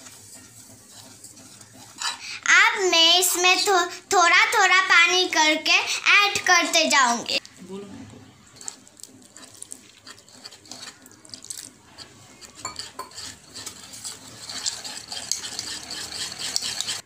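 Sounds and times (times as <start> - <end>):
whisk scraping and clicking in bowl: 0.0 - 2.4, 8.4 - 17.0.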